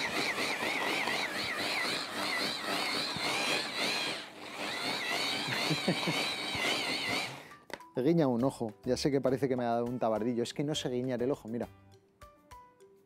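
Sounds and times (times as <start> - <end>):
hand blender chopper whining: 0.0 - 7.6.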